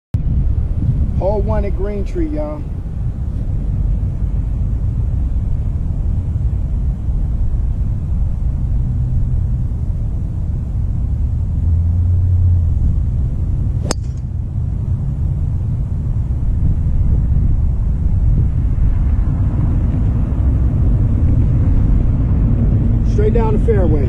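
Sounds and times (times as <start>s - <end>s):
low rumble: 0.2s - 24.0s
golf driver striking ball: 13.8s - 14.3s.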